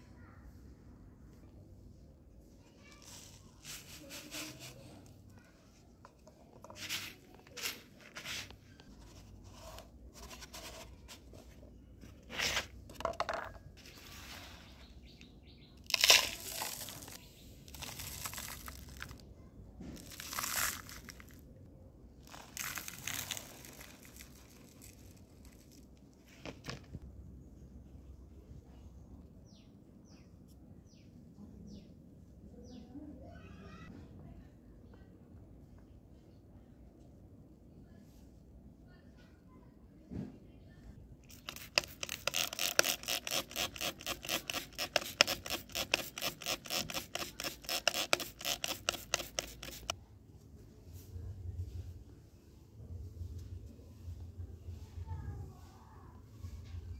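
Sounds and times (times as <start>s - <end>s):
rustling and crunching of soil: 2.4s - 12.9s, 13.7s - 27.1s.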